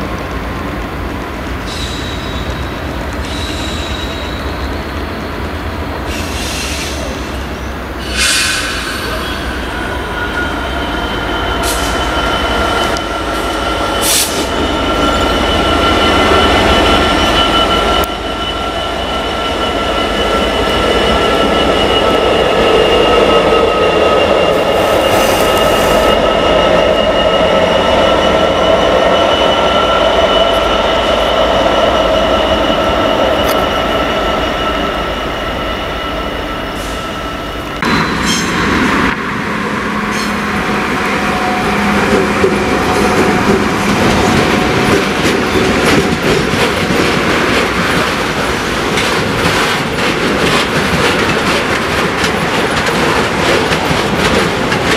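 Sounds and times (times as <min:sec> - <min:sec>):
freight train rumbling: 0:00.0 - 0:54.9
high-pitched wheel squeal: 0:03.2 - 0:05.2, 0:08.0 - 0:38.6.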